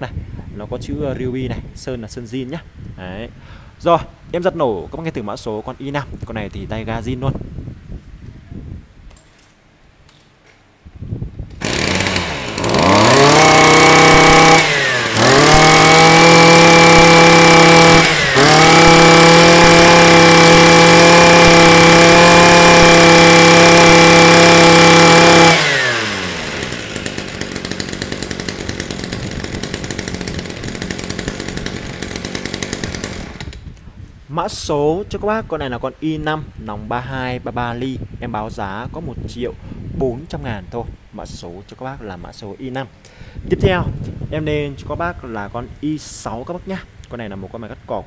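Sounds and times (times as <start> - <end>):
brush cutter engine revving: 11.5 - 33.7.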